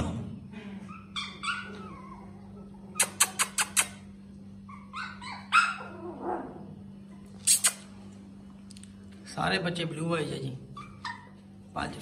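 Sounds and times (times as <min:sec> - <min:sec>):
steady low hum: 0:00.0 - 0:12.0
puppies yipping and whimpering: 0:00.5 - 0:04.0, 0:04.6 - 0:06.6, 0:10.7 - 0:11.6.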